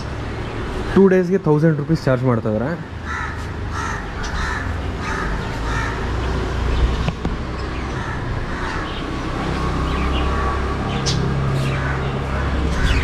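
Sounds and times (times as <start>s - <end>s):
crow cawing: 3.0s - 6.2s, 7.8s - 9.1s, 11.6s - 13.0s
small birds chirping: 3.1s - 13.0s.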